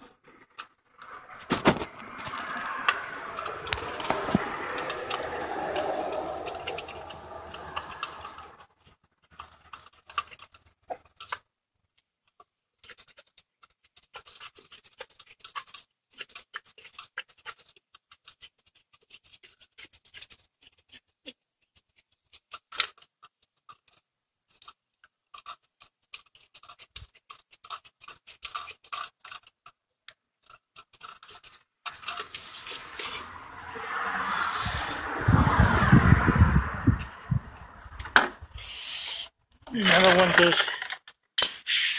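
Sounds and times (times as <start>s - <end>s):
tool scraping metal parts: 0.0s - 8.7s, 23.8s - 29.5s, 30.4s - 33.3s.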